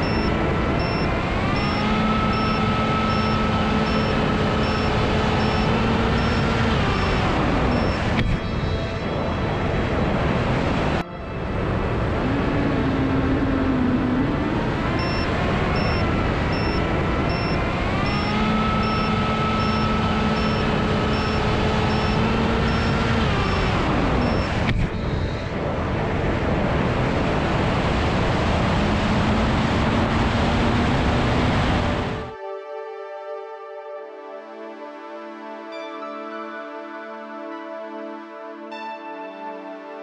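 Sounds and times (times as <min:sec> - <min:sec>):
short high beeps: 0:00.0 - 0:08.1, 0:15.0 - 0:23.0
electric motor and propeller whine: 0:00.0 - 0:32.3
wind rushing over microphone: 0:23.2 - 0:32.3.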